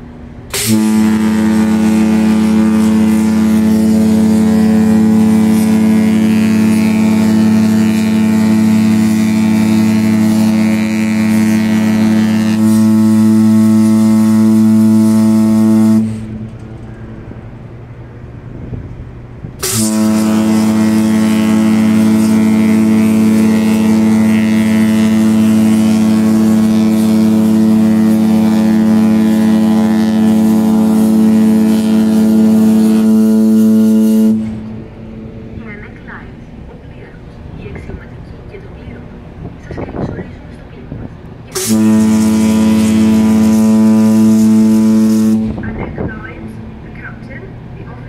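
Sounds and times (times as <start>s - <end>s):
ship horn blasts: 0.0s - 48.0s.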